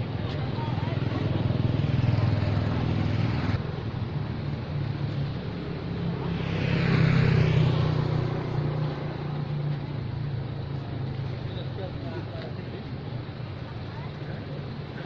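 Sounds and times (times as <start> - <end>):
vehicle engine passing: 5.7 - 10.0.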